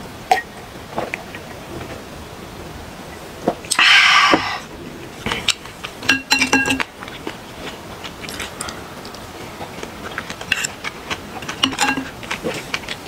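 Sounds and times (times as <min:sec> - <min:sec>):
chopsticks clicking against dishes: 0:10.2 - 0:13.0.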